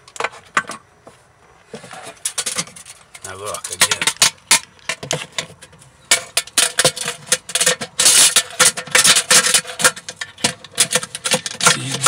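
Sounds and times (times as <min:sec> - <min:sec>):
handling clicks and knocks: 0:02.2 - 0:12.0.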